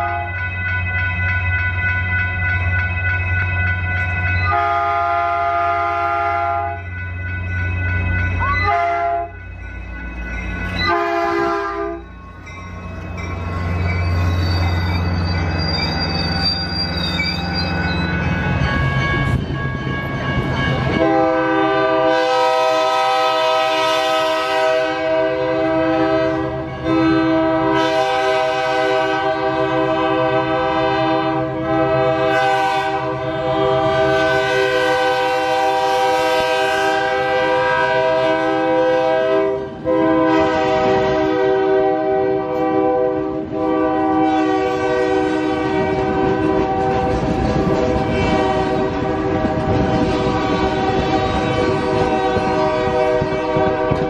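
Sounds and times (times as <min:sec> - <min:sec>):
locomotive air horns: 0:00.0 - 0:00.4, 0:04.4 - 0:06.9, 0:08.5 - 0:09.4, 0:10.8 - 0:12.1, 0:21.0 - 0:54.0
train cars rushing past: 0:00.0 - 0:54.0.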